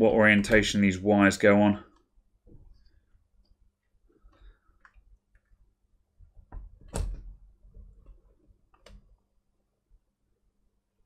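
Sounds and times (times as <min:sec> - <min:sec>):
clicks and knocks on laptop: 0:06.2 - 0:09.2.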